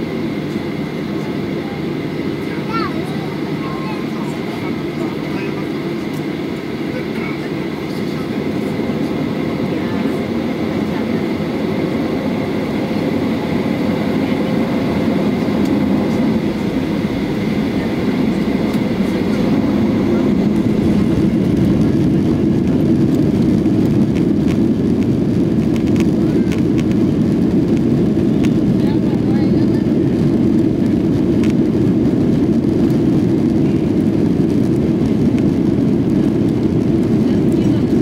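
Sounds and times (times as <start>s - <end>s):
airplane cabin rumble: 0.0s - 38.0s.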